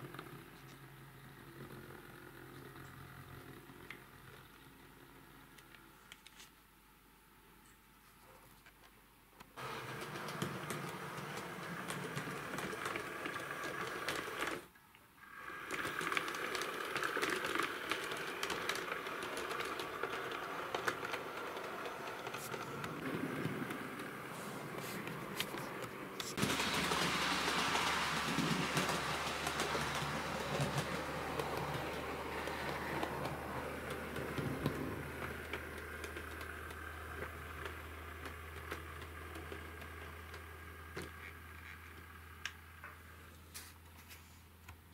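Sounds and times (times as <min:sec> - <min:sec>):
model train motor whirring: 0:09.6 - 0:42.6
wheels clicking over rail joints: 0:09.6 - 0:43.0.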